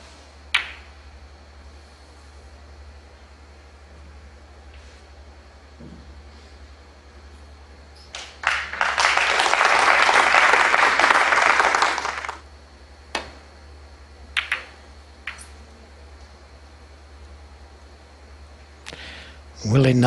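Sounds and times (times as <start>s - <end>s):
crowd applauding: 8.2s - 12.4s.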